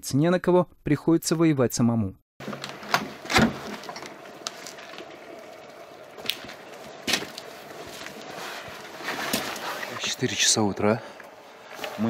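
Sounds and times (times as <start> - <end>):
handling noise while walking: 2.4 - 10.1.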